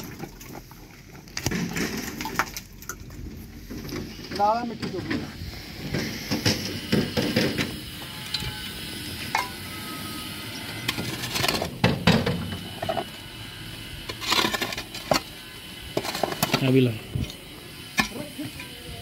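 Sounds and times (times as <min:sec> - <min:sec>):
hoe striking and scraping soil: 0:10.8 - 0:13.1, 0:14.1 - 0:15.3.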